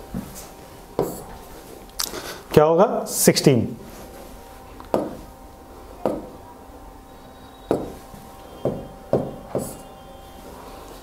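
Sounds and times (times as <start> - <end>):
marker tapping on whiteboard: 1.0 - 1.2, 4.9 - 5.2, 6.0 - 6.4, 7.7 - 8.0, 8.6 - 9.8.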